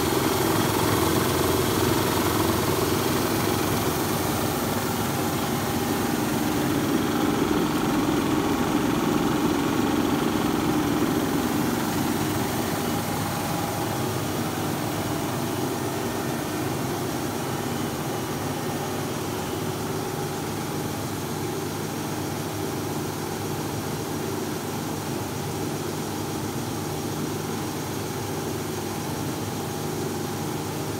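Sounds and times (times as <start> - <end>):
machine rollers humming: 0.0 - 22.4.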